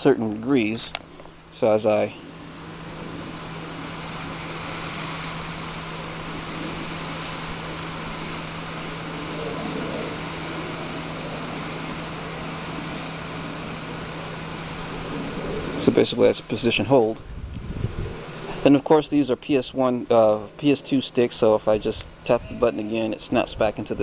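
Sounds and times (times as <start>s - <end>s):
electric motor hum: 1.1s - 18.7s.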